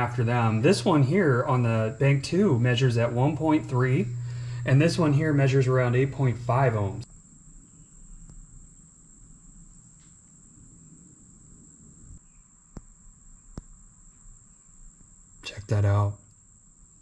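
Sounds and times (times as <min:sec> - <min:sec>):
faint high-pitched tone: 0:00.0 - 0:07.1
low hum: 0:00.0 - 0:17.0.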